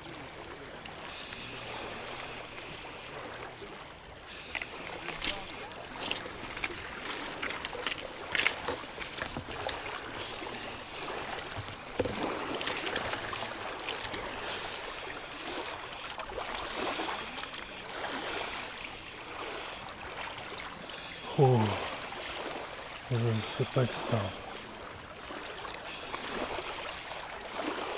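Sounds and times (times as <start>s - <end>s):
water splashing and lapping: 0.0s - 27.9s.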